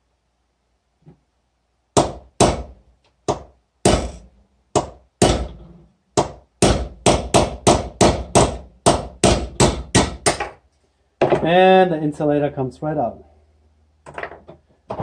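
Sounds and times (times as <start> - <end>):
hammer striking a metal punch: 3.3 - 4.2.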